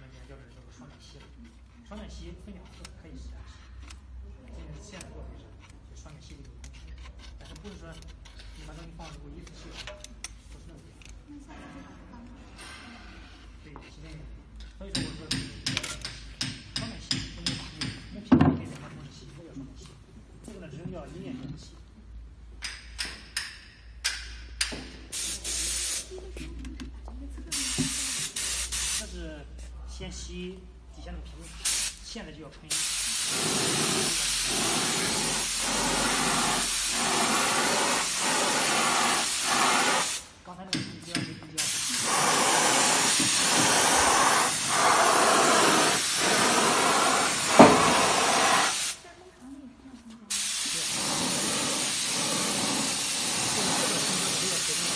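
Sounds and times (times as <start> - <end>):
air spray gun hissing: 25.1 - 26.2, 27.5 - 29.1, 32.7 - 40.3, 41.6 - 49.0, 50.3 - 54.9.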